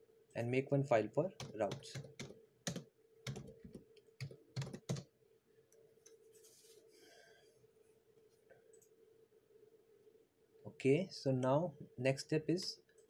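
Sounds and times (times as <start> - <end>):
faint steady hum: 0.0 - 13.0
keyboard key presses: 1.4 - 5.0.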